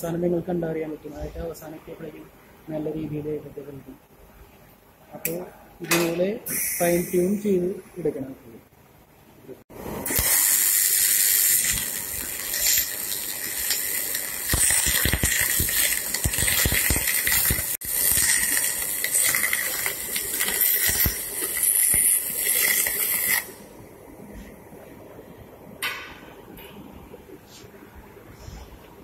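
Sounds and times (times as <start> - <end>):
welder arc hissing crackle: 6.5 - 7.8, 9.8 - 23.8.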